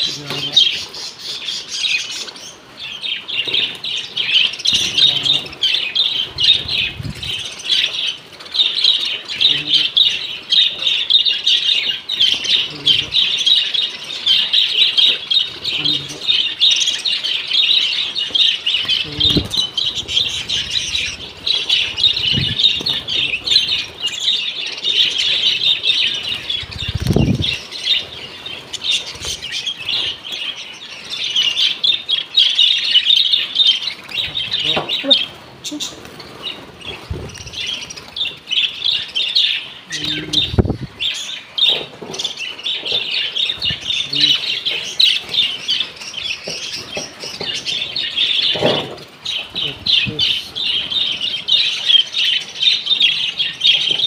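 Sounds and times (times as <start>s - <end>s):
budgerigars chirping: 0.0s - 54.0s
wings fluttering: 18.2s - 24.2s, 25.1s - 30.2s, 33.8s - 38.5s, 39.9s - 41.0s.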